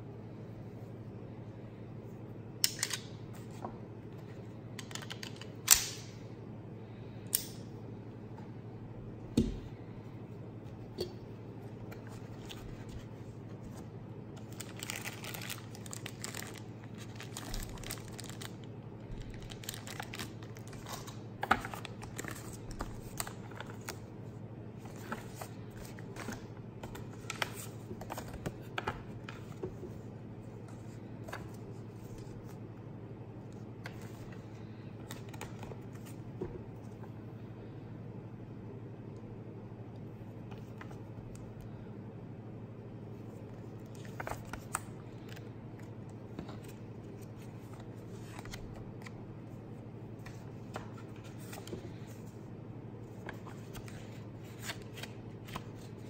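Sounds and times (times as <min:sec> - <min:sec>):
steady low hum: 0:00.0 - 0:56.0
plastic bag crinkling: 0:14.4 - 0:21.2.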